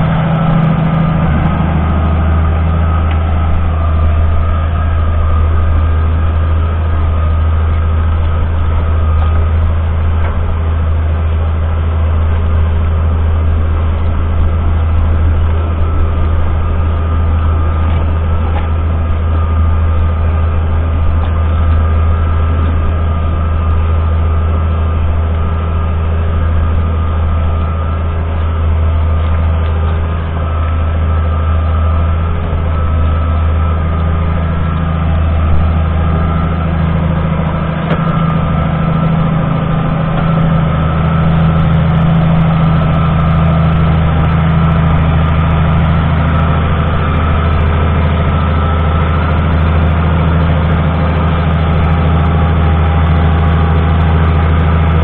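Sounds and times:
diesel tractor engine droning: 0.0s - 55.0s.

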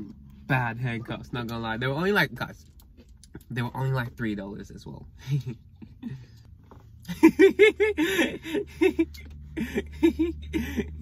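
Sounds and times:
person laughing: 7.1s - 11.0s.

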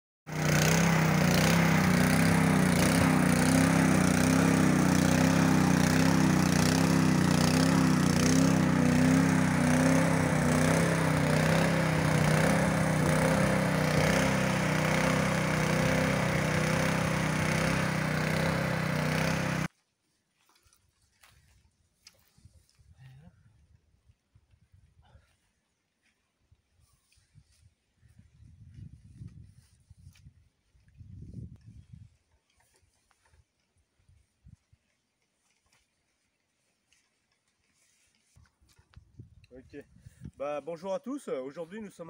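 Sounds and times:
tiller petrol engine running: 0.3s - 19.7s.

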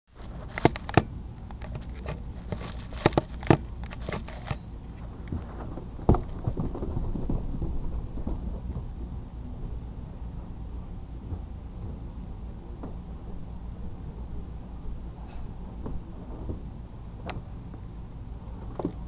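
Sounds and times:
low rumble: 4.7s - 19.0s.

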